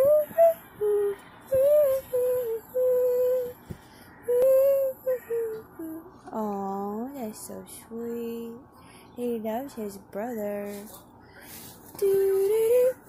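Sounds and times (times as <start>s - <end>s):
woman singing a lullaby: 0.0s - 13.0s.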